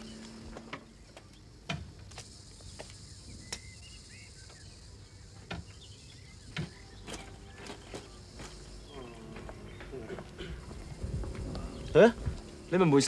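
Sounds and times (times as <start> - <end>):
faint bird chirps: 2.4 - 13.0.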